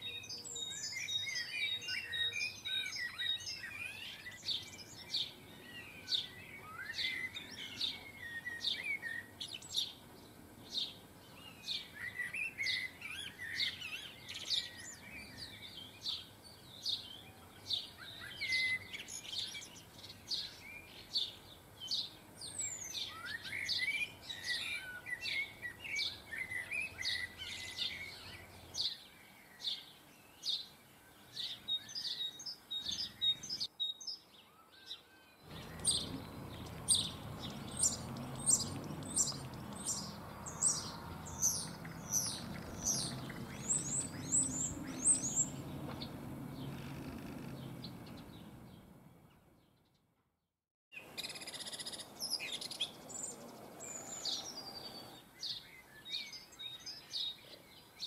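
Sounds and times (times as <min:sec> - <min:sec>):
songbirds chirping and twittering: 0:00.0 - 0:50.2, 0:50.9 - 0:58.0.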